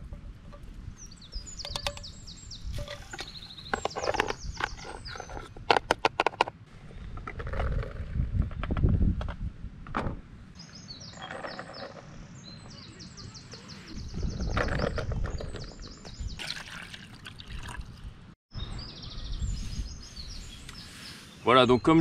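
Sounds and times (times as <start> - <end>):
songbird singing: 0.0 - 5.6, 10.5 - 17.0, 17.6 - 22.0.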